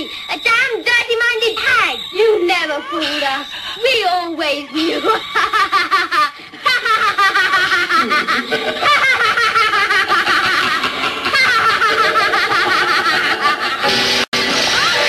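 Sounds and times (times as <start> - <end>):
boy laughing loudly: 4.9 - 13.9.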